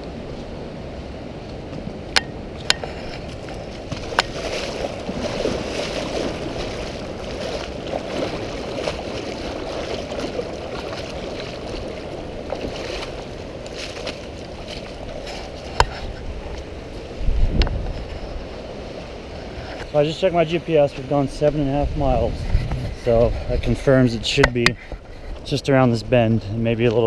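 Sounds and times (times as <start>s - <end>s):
water rushing and splashing: 0.0s - 27.0s.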